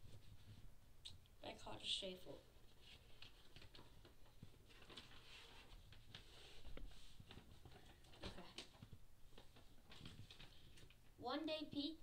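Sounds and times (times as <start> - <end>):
paper pages rustling: 2.6 - 11.0.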